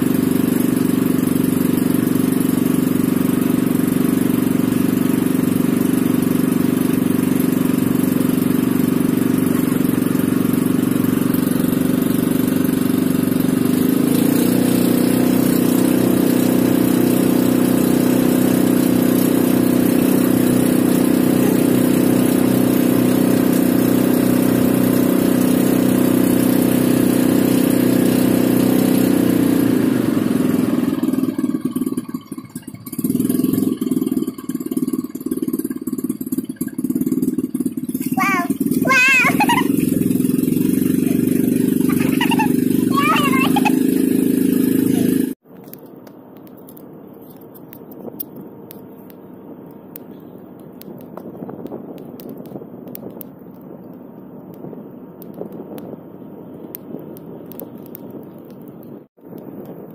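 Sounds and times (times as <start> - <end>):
boat engine running: 0.0 - 45.4.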